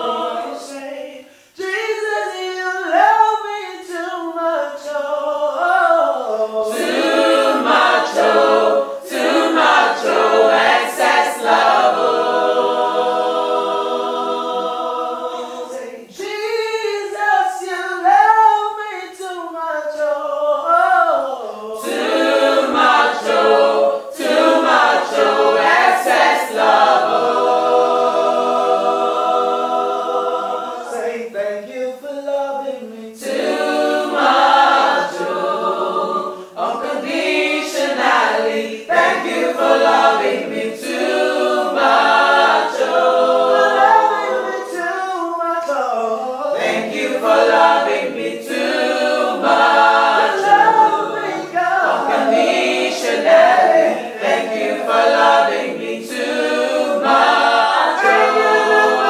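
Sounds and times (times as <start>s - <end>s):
group singing a cappella: 0.0s - 59.0s.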